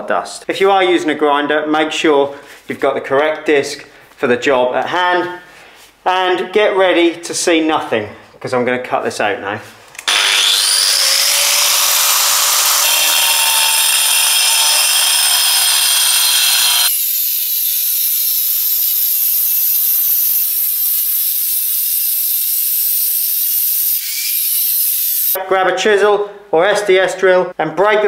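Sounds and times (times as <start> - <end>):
angle grinder cutting wall: 9.9 - 25.4.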